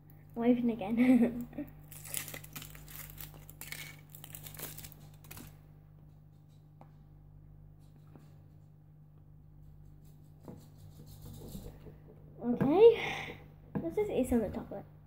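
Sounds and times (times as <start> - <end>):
foil wrapper crinkling and tearing: 1.8 - 5.6.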